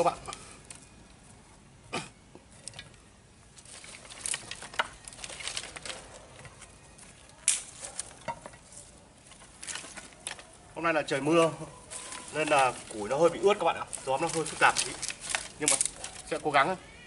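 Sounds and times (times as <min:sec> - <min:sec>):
sticks and twigs rustling: 0:00.0 - 0:01.7, 0:02.4 - 0:17.0
twig snapping: 0:07.4 - 0:08.2, 0:13.8 - 0:16.4.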